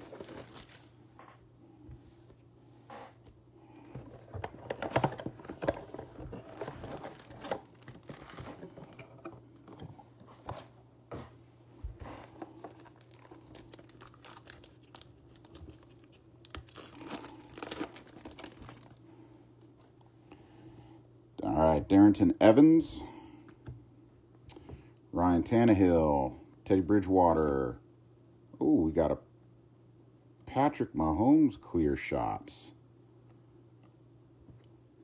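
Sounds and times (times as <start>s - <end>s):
foil wrappers crinkling: 0.0s - 1.0s, 4.7s - 9.0s, 12.3s - 19.0s
steady low hum: 0.0s - 35.0s
pack torn open: 12.8s - 18.9s.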